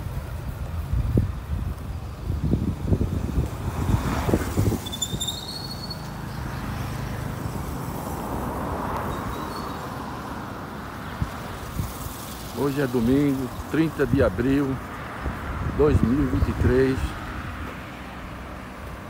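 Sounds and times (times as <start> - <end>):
wind buffeting microphone: 0.0 - 5.4, 13.1 - 19.0
vehicle passing: 2.1 - 19.0
high chirps: 4.8 - 6.2.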